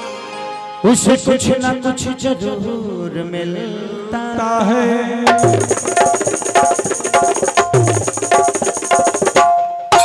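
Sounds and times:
hand drums fast rhythm: 5.3s - 10.0s.

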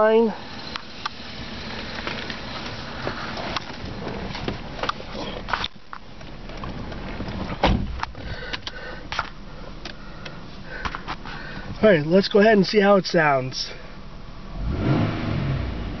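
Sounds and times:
car engine idling: 0.0s - 14.8s
loud thump: 7.6s - 8.0s.

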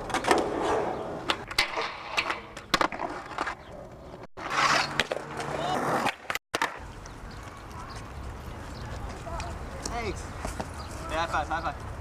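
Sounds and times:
skateboard clacking on ground: 0.0s - 8.1s
skateboard wheels rolling: 0.0s - 12.0s.

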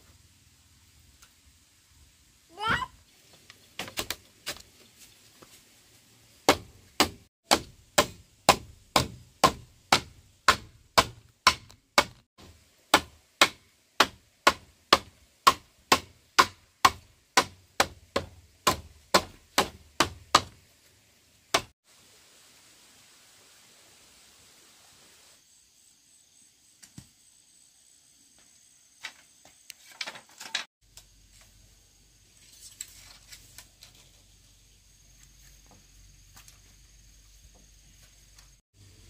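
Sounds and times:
hand tool striking wood: 6.5s - 20.6s, 21.5s - 21.7s.

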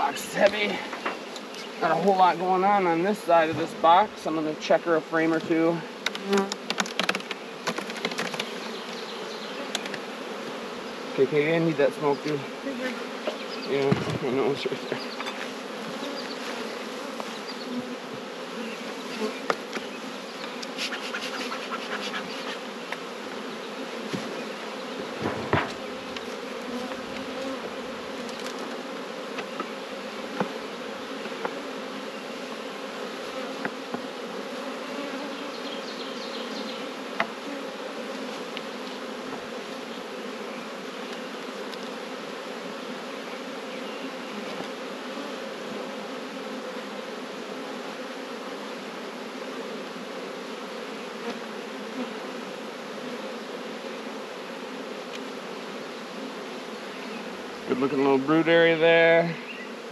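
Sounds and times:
honey bees buzzing: 0.0s - 59.9s
wooden hive frames knocking: 0.4s - 2.2s, 5.4s - 8.6s, 13.2s - 16.4s, 24.0s - 31.6s, 37.1s - 37.5s, 39.2s - 39.8s.

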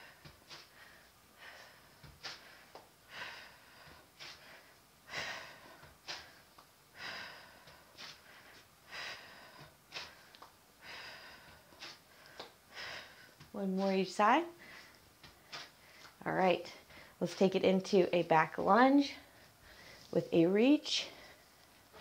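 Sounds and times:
woman breathing: 0.0s - 13.9s, 14.5s - 17.2s, 19.1s - 20.2s, 20.9s - 22.0s.

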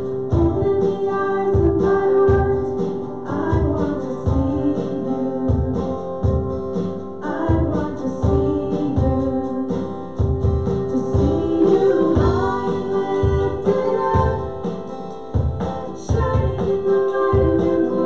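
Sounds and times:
singing over a band: 10.9s - 14.8s, 15.9s - 18.0s.

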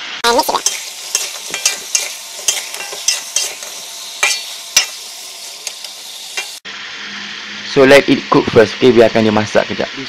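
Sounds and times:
chicken sizzling in oil: 0.0s - 10.0s
metal spatula scraping pan: 0.6s - 6.6s.

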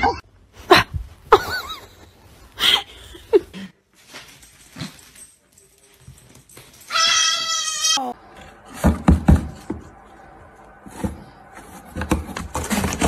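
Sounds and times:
young animal crying: 6.9s - 8.2s.

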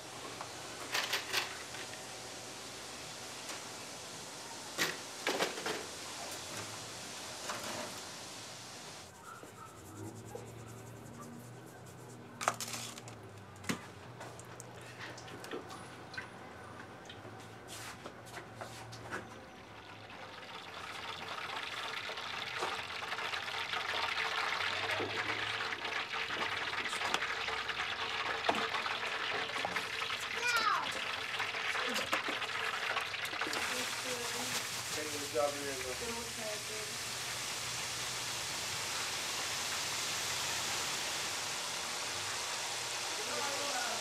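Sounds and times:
running water: 19.7s - 37.6s
liquid poured into pot: 20.2s - 35.4s.

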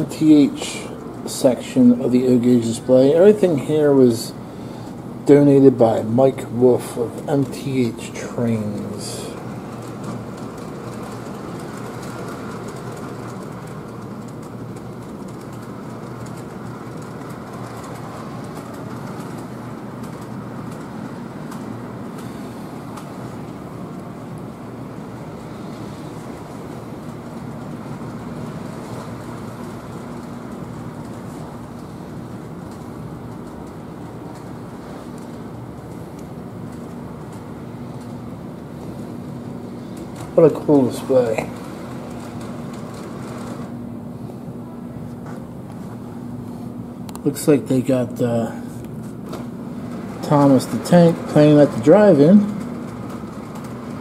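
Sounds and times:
model train rolling rumble: 0.0s - 54.0s
light clicks of train wheels: 6.6s - 43.8s.

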